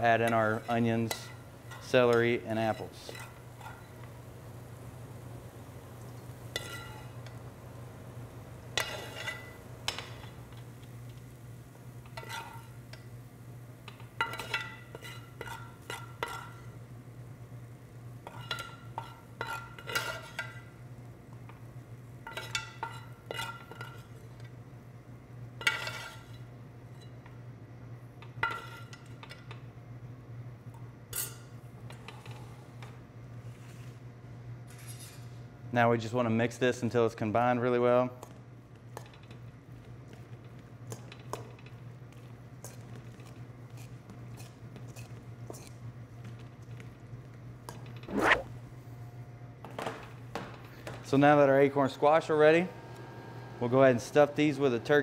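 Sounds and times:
steady low hum: 0.0 - 19.8
metal spoon scraping a pan: 0.2 - 3.9, 6.5 - 7.2, 12.1 - 12.8.

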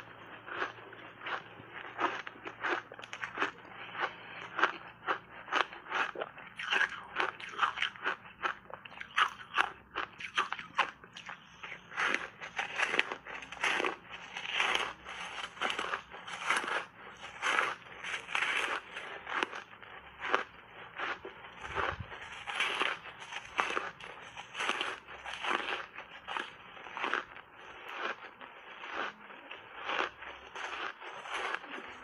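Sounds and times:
ice bars being crunched: 11.6 - 19.6, 20.2 - 27.2, 29.8 - 32.0.

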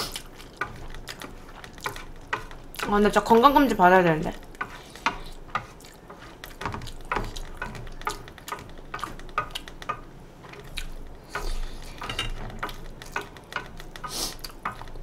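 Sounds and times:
eating sounds: 0.0 - 2.0.

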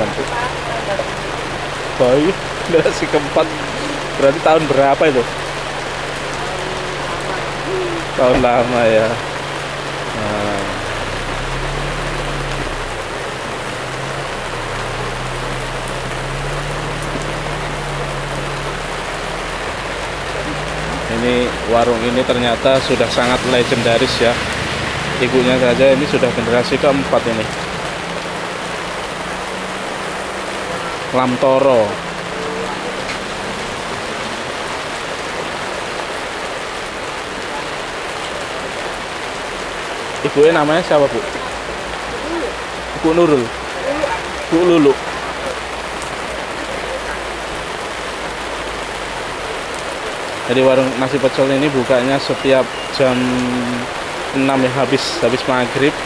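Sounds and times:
heavy rain on canopy: 0.0 - 56.0.

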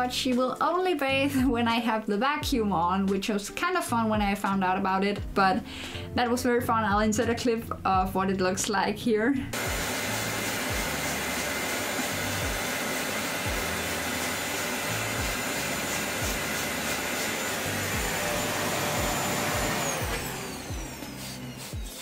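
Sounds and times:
vacuum cleaner running: 9.6 - 22.0.

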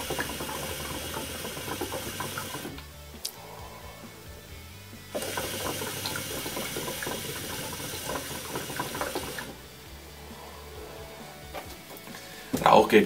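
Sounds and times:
hookah water bubbling: 0.0 - 2.8, 5.2 - 9.8.

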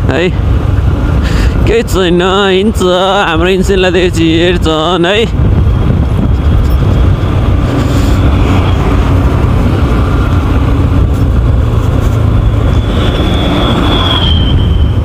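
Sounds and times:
wind rumble on microphone: 0.0 - 15.0
motorcycle engine running: 5.4 - 14.1.

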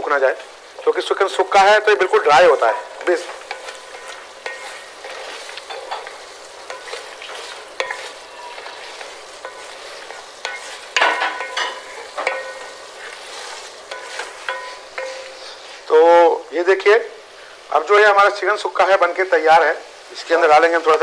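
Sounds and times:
food sizzling: 0.0 - 21.0
wooden spatula scraping metal pot: 0.4 - 16.0.

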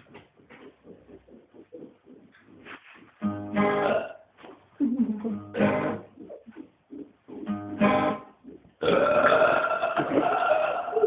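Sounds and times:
man belching: 3.6 - 4.2, 8.8 - 11.0.

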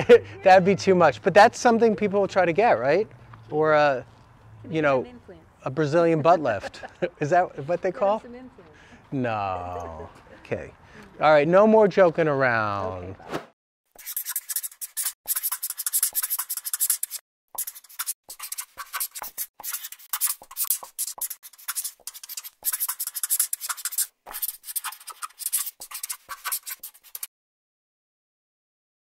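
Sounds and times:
pen scratching on paper: 14.0 - 27.3.

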